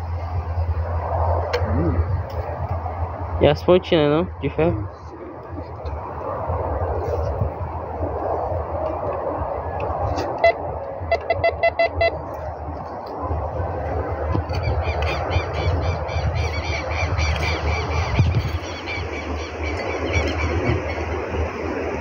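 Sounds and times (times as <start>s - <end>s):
low rumble: 0.0s - 22.0s
metal detector beeping: 10.2s - 12.4s.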